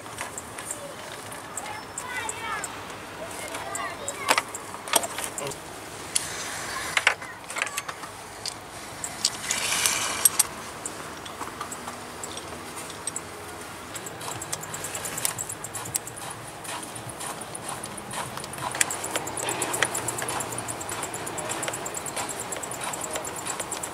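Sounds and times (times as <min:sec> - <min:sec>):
metal tools knocking on engine parts: 0:07.0 - 0:23.9
rasping: 0:13.9 - 0:23.9.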